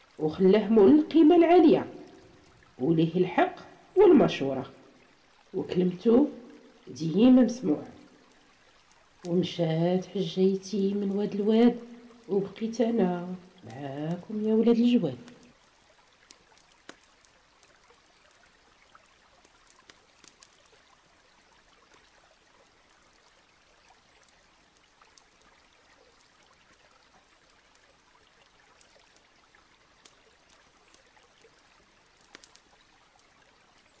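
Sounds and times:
faint trickle of running water: 0:00.0 - 0:34.0
faint ticks: 0:15.2 - 0:34.0.

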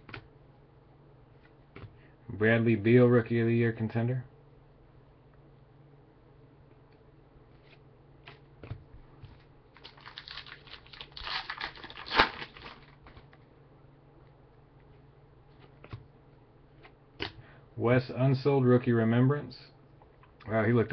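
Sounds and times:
wrapper crinkling and tearing: 0:09.7 - 0:13.2.

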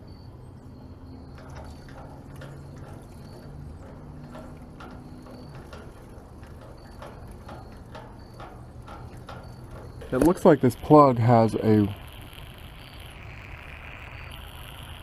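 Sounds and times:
hand pump clicking: 0:00.9 - 0:11.0.

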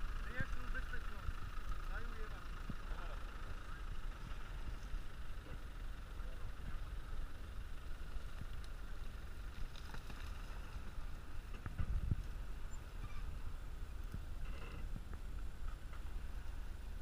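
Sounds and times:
engine low rumble: 0:00.0 - 0:17.0.

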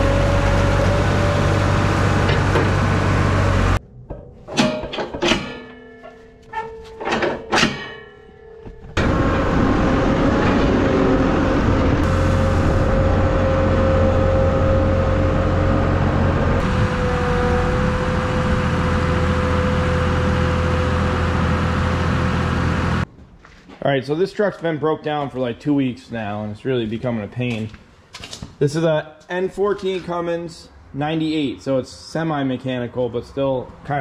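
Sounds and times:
heavy engine humming and whining: 0:00.0 - 0:03.8, 0:08.7 - 0:23.1.

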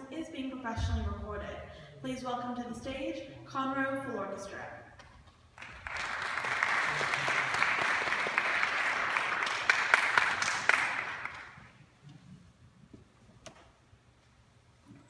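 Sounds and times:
audience applauding: 0:05.6 - 0:11.7.

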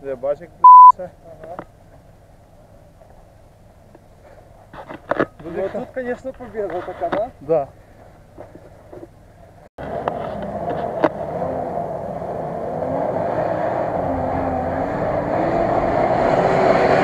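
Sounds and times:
pickup engine revving unevenly: 0:09.8 - 0:17.0.

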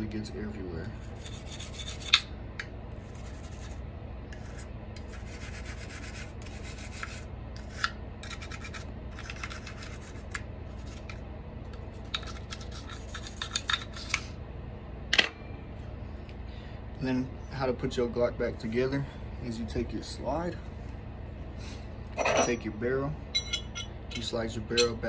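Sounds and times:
toothbrush scrubbing metal: 0:01.0 - 0:02.2, 0:03.0 - 0:11.2, 0:12.1 - 0:14.2.

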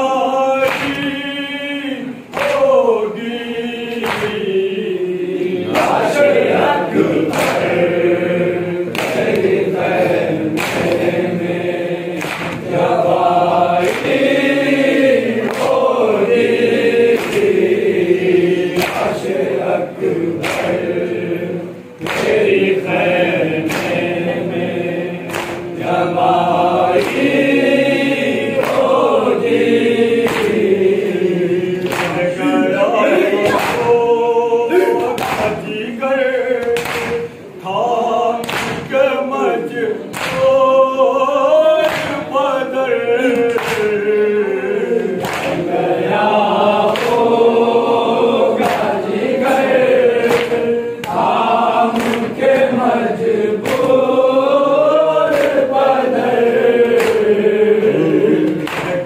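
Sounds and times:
lead reciter chanting: 0:00.0 - 0:59.0
men chanting in unison: 0:00.0 - 0:59.0
hands beating chests: 0:33.3 - 0:34.0.

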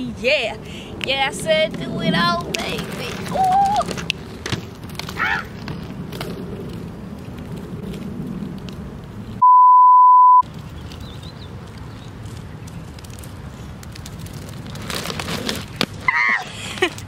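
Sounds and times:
censor bleep: 0:09.4 - 0:10.4.

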